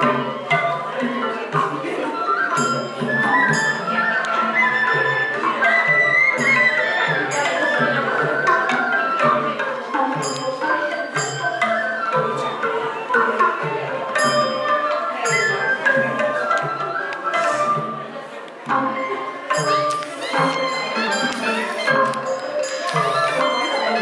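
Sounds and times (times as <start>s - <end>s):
sharp percussion clicks: 19.5s - 23.6s.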